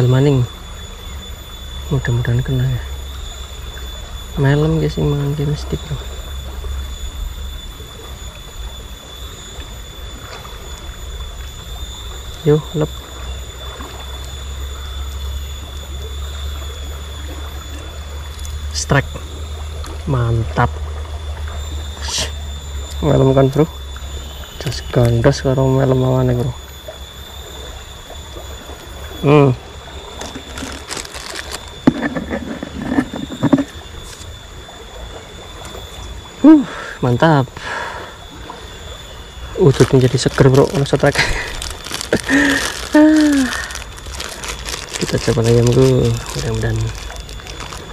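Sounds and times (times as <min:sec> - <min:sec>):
faint stream rushing: 0:28.5 - 0:47.9
plastic bag crinkling: 0:30.2 - 0:32.1, 0:39.7 - 0:47.9.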